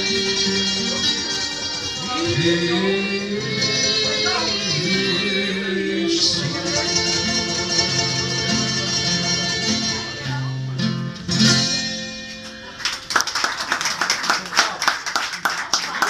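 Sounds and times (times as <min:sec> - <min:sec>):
person singing with acoustic guitar: 0:00.0 - 0:12.0
audience clapping: 0:12.3 - 0:16.0.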